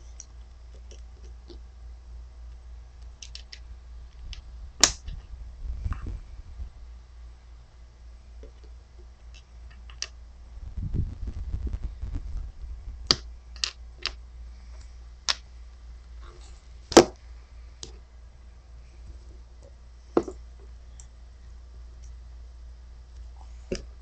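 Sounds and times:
low rubbing rumble: 0:04.2 - 0:07.0, 0:10.4 - 0:13.1.

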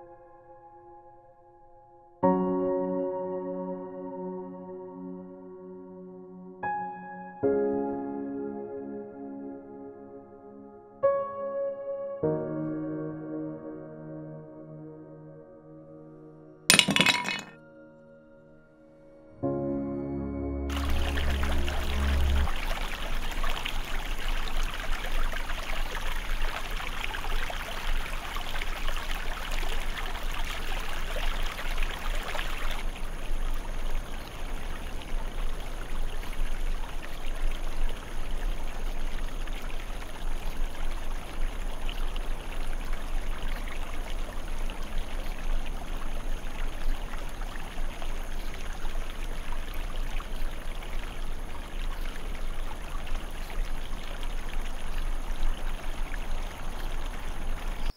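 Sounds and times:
stream rushing over rocks: 0:20.7 - 0:57.9.

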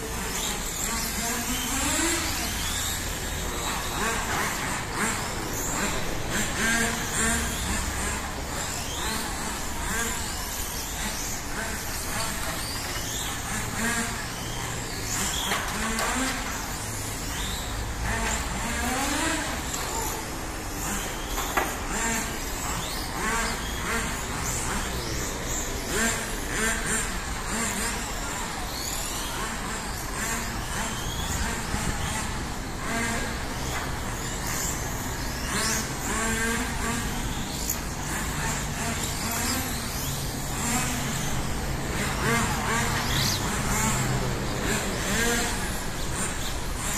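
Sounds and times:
rc car motors whining: 0:00.0 - 0:46.9
steady low hum: 0:00.0 - 0:46.9.

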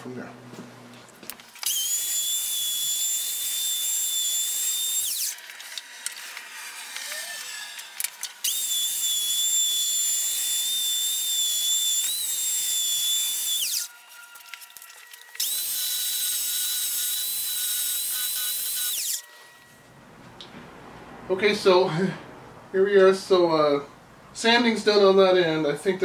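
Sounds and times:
belt sander whining: 0:01.5 - 0:19.7.

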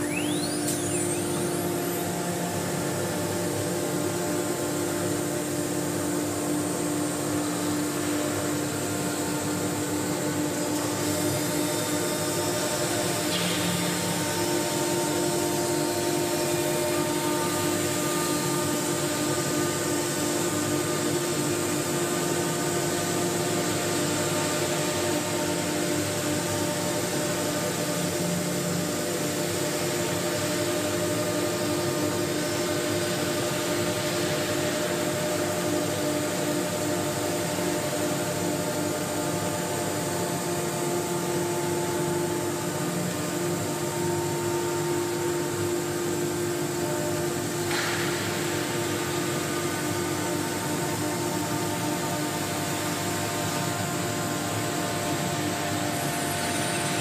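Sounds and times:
machine hum with whining tones: 0:00.0 - 0:57.0.

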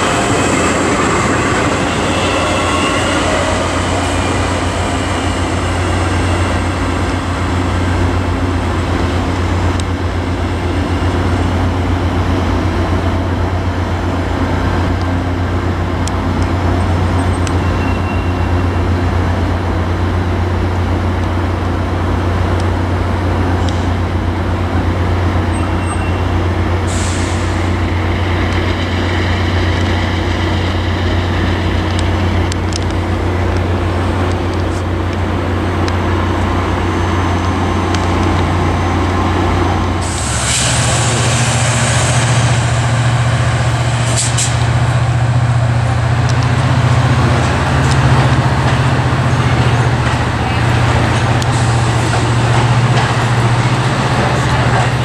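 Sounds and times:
diesel locomotive engine drone: 0:00.0 - 0:55.0
air hissing: 0:40.0 - 0:42.9.

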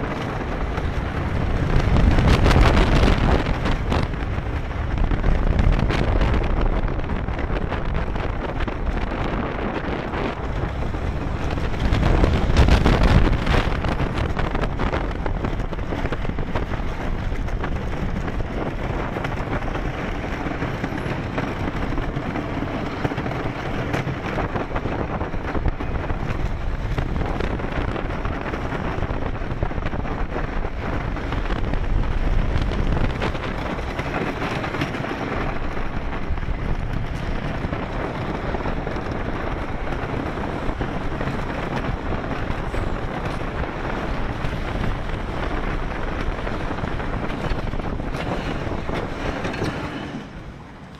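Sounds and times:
roller coaster rumbling on wooden track: 0:00.0 - 0:50.9.

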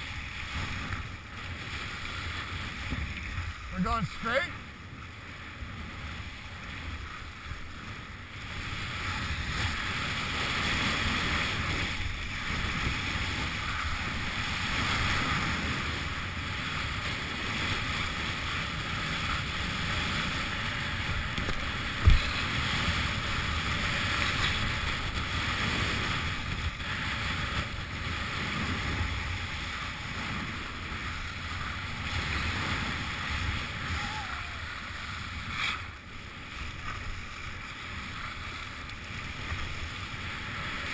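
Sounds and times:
skis scraping over hard snow: 0:05.8 - 0:33.8.

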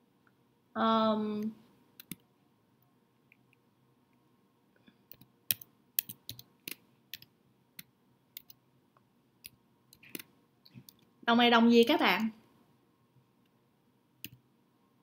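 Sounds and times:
keyboard typing clicks: 0:02.0 - 0:02.2, 0:05.1 - 0:08.6, 0:09.4 - 0:11.0.

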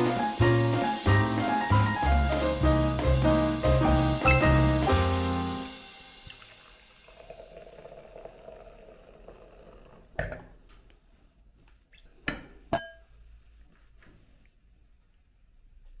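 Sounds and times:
glasses clinking: 0:04.3 - 0:04.8, 0:12.7 - 0:13.1
wine pouring into glass: 0:04.3 - 0:04.8, 0:06.2 - 0:10.5.

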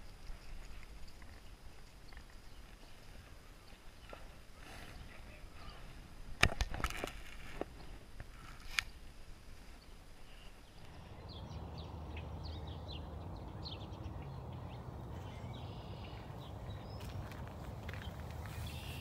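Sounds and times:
small birds chirping: 0:00.0 - 0:06.0, 0:07.7 - 0:19.0
low outdoor rumble: 0:10.6 - 0:19.0.

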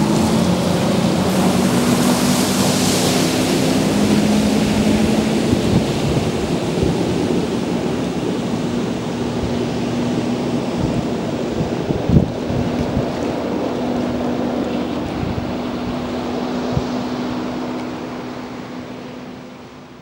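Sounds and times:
spray hitting water: 0:00.0 - 0:14.3
boat engine passing: 0:00.0 - 0:20.0
wake washing in: 0:00.0 - 0:20.0.

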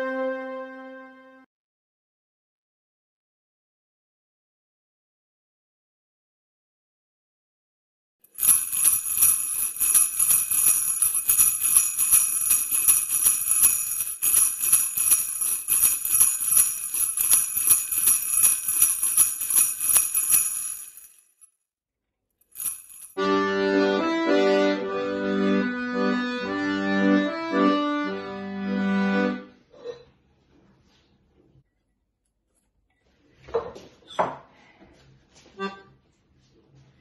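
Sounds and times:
accordion playing chords: 0:00.0 - 0:01.5, 0:23.2 - 0:29.6, 0:35.6 - 0:36.0
jingle bells shaken: 0:08.3 - 0:21.4, 0:22.6 - 0:23.2.

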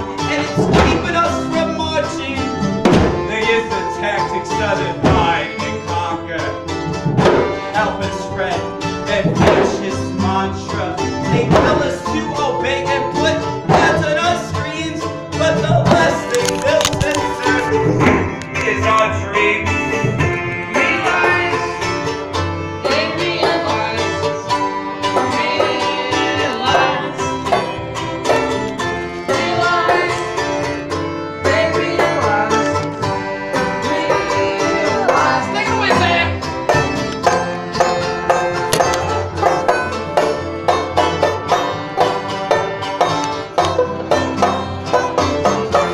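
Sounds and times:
accordion: 0:00.0 - 0:45.9
acoustic guitar picking: 0:00.0 - 0:45.9
banjo picking: 0:00.0 - 0:45.9
washtub bass: 0:00.3 - 0:32.8.

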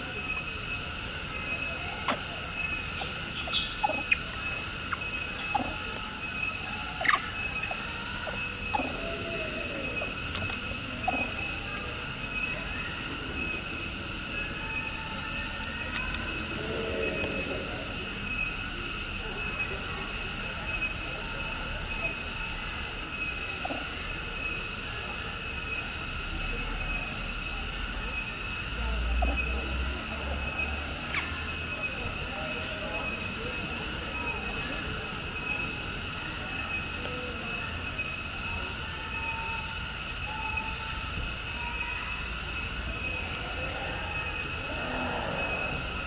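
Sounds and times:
cicadas singing: 0:00.0 - 0:46.0.

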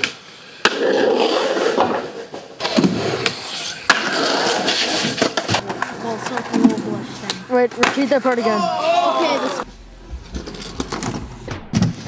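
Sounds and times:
skateboard clack: 0:00.0 - 0:08.6
skateboard wheels rolling on asphalt: 0:00.0 - 0:09.7.

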